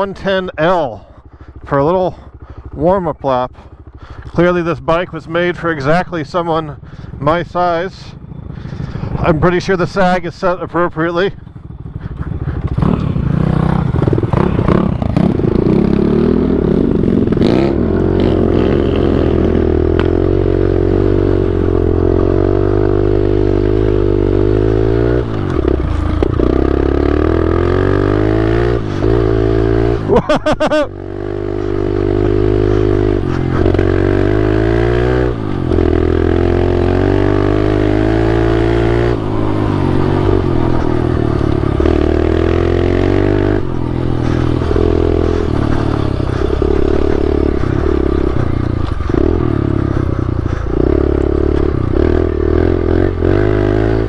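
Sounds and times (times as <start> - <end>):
small motorbike engine revving: 11.6 - 54.0.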